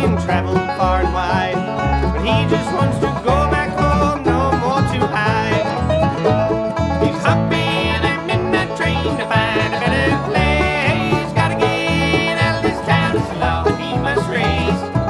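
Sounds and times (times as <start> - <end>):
banjo: 0.0 - 15.0
bluegrass band music: 0.0 - 15.0.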